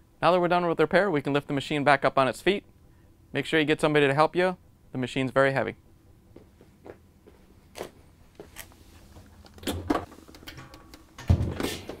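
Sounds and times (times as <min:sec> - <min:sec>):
knocks and clicks from metal cabinet: 0:09.6 - 0:12.0
washing machine heavy thud: 0:11.2 - 0:12.0.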